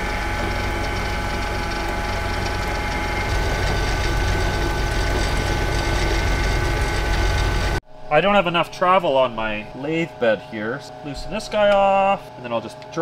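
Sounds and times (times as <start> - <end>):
end mill cutting metal: 0.0 - 7.8
motor and gear whine: 0.0 - 7.8.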